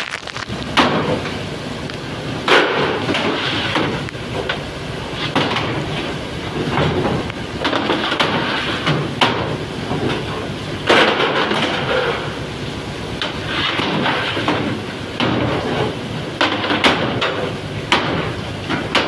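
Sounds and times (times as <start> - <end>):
fish-processing machinery din: 0.0 - 19.0.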